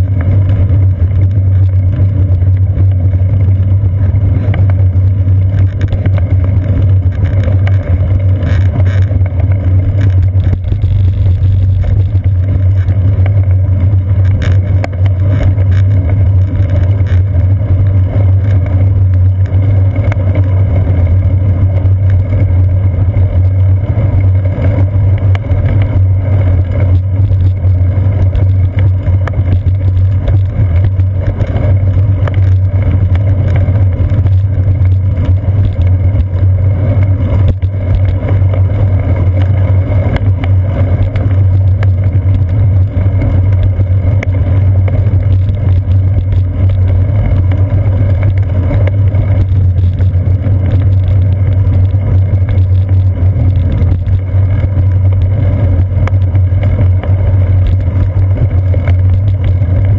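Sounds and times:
bicycle road vibration rumble: 0.0 - 59.9.

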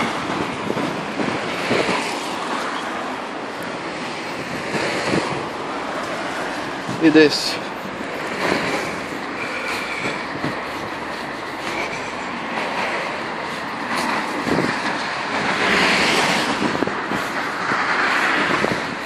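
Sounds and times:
steady rushing noise: 0.0 - 19.0
footsteps on slushy snow: 5.7 - 14.8.

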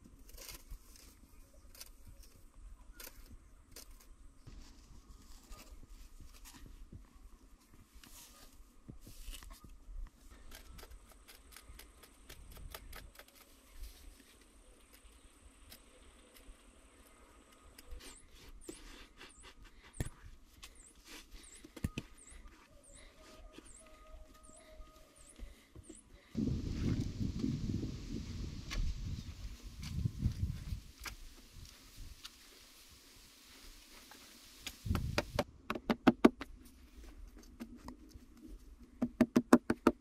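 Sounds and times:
metal blade scraping clay earth: 0.2 - 4.2.

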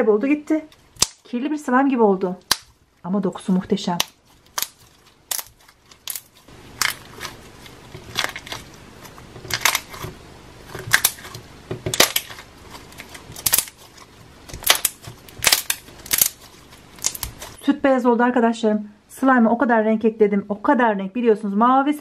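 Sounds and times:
slime popping and clicking: 0.9 - 1.2, 2.4 - 2.8, 14.5 - 17.6.

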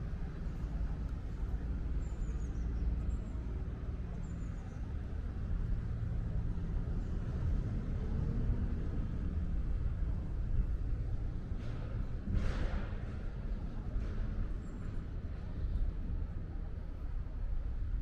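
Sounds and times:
traffic rumble: 0.0 - 18.0.

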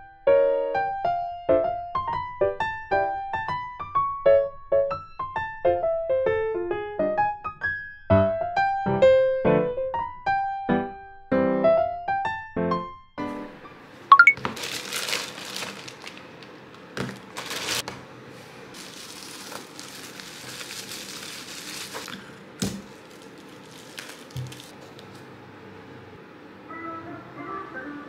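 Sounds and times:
piano notes: 0.2 - 17.8
packaging crinkling and rustling: 14.4 - 18.0, 18.7 - 25.3.

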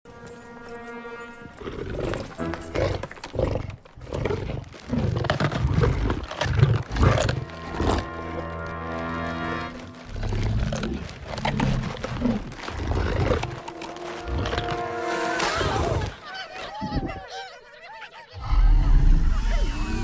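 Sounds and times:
dramatic music: 7.0 - 16.7
held musical note: 13.2 - 16.5.

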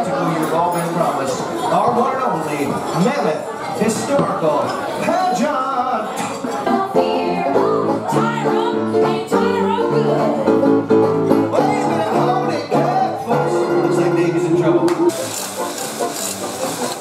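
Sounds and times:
performers singing country song: 5.0 - 15.2
instrumental accompaniment: 6.5 - 17.0.

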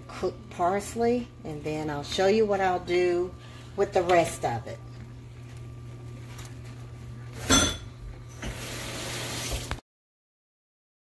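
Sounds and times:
steady low hum: 0.0 - 8.4
kitchenware clattering: 7.4 - 8.6.

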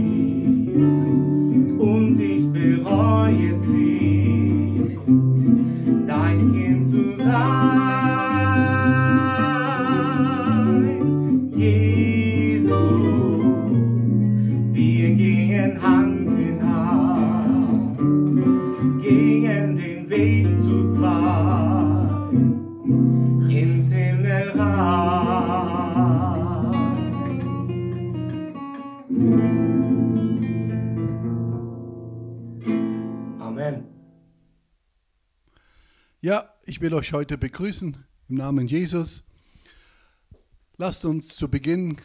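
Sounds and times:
person singing with vibrato: 0.0 - 27.7
acoustic guitar: 0.0 - 34.8.

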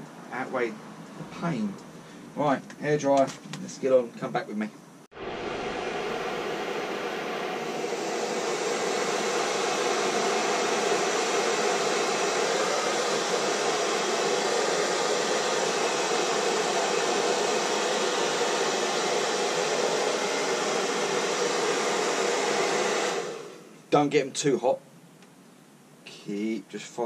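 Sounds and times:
hair dryer running: 5.1 - 23.8.

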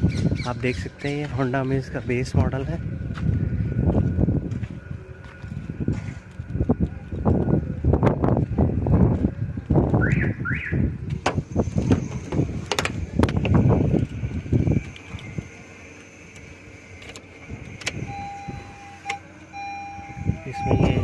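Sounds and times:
car door opening clicks: 11.1 - 14.1, 16.3 - 19.2
car warning chime beeping: 18.0 - 21.0.

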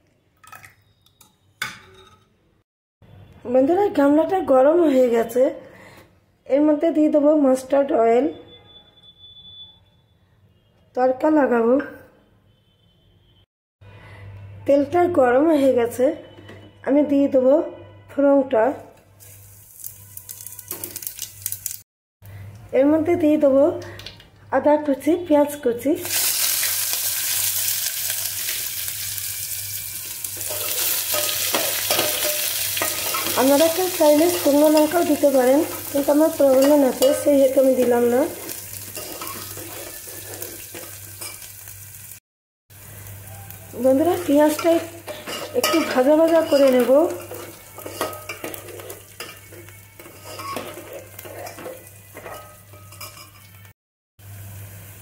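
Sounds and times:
food sizzling in hot oil: 19.2 - 21.8, 26.0 - 55.0
spoon scraping metal pot: 30.4 - 41.5, 44.5 - 53.6.

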